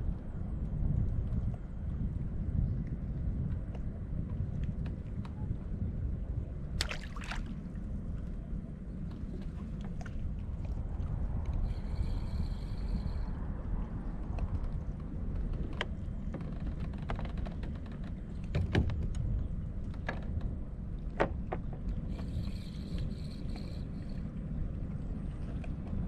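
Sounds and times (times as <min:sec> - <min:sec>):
wind on microphone: 0:00.0 - 0:26.0
water against kayak hull: 0:06.8 - 0:13.2.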